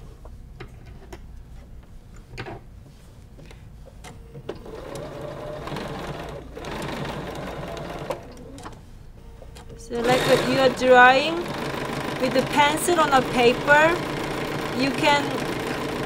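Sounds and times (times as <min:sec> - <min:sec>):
sewing machine stitching: 0:04.6 - 0:08.8, 0:10.0 - 0:16.0.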